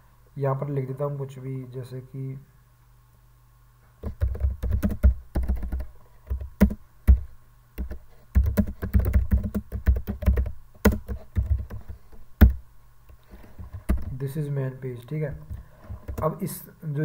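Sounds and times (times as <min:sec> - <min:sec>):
computer keyboard typing: 0:04.0 - 0:12.6, 0:13.5 - 0:14.2, 0:15.5 - 0:16.3.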